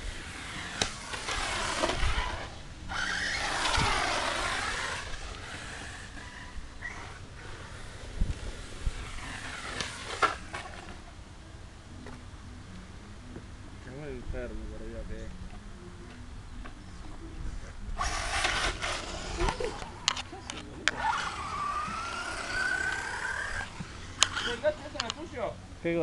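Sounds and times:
electric motor whining: 0.0 - 11.1, 17.7 - 25.5
low rumble and hiss: 0.0 - 26.0.

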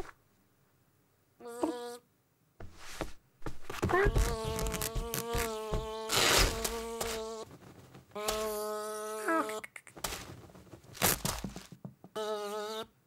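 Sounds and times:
cartoon fly buzzing: 1.4 - 2.0, 3.8 - 7.5, 8.2 - 10.0, 12.1 - 12.9
cat claws tearing curtain: 4.2 - 7.2, 11.0 - 11.4.

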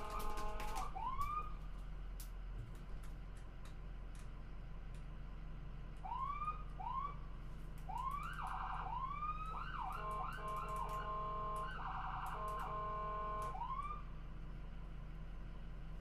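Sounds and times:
ambulance siren cycling tones: 0.0 - 1.6, 6.0 - 7.2, 7.9 - 14.1
ambulance engine rumble: 0.0 - 16.0.

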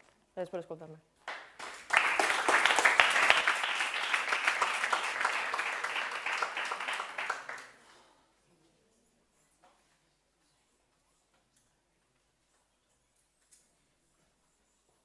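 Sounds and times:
audience applauding: 1.3 - 7.8.

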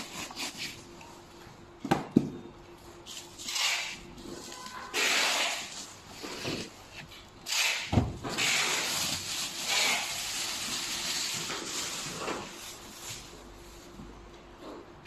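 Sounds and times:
plastic wrapping crinkling: 8.2 - 13.9.

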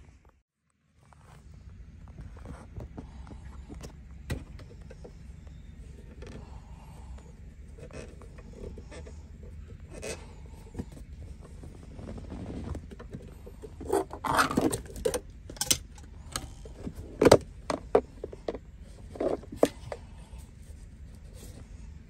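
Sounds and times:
fabric rustling and scraping on plastic: 10.0 - 14.8.

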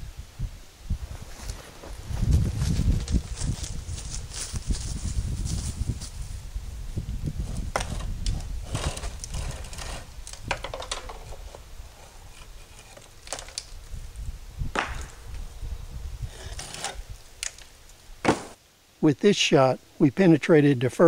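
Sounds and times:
concrete slabs knocking and scraping: 7.7 - 13.6.

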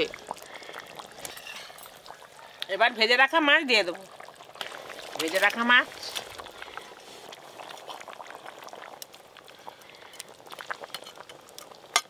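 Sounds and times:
curry bubbling in a pot: 0.0 - 12.0
fish sliding off metal spatula: 1.2 - 1.8.

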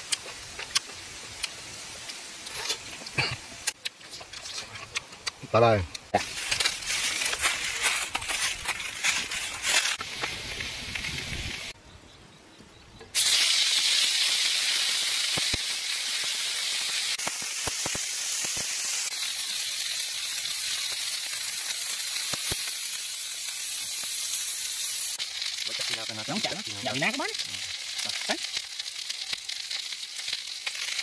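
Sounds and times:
octopus sizzling on griddle: 0.0 - 11.8, 13.2 - 31.0
sharp pops: 13.1 - 19.9, 20.7 - 25.6.

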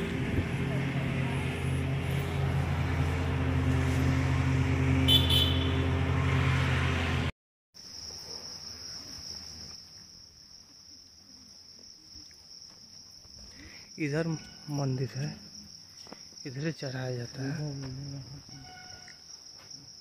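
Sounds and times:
low motor hum: 0.0 - 7.3
insect chorus droning: 7.8 - 20.0.

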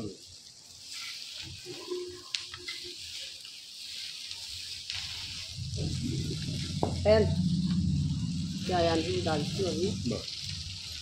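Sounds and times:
sizzler hissing on hot plate: 0.0 - 11.0
low hum: 5.2 - 11.0.

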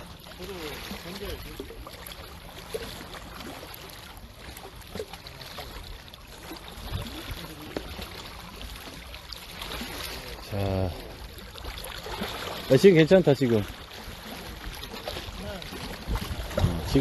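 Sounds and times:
sea water lapping: 0.0 - 17.0.

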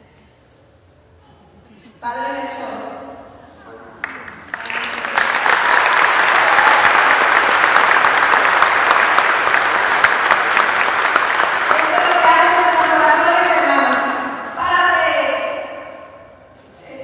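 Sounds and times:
crowd applauding: 4.0 - 14.3.

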